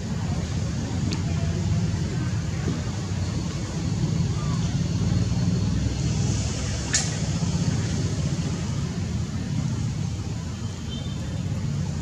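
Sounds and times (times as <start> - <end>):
low engine rumble: 0.0 - 12.0
sharp click: 6.9 - 7.2.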